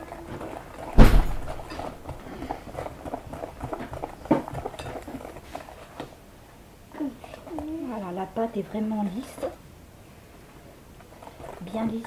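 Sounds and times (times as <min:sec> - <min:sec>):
small knock: 0:01.0 - 0:01.8
loud thud: 0:01.0 - 0:02.0.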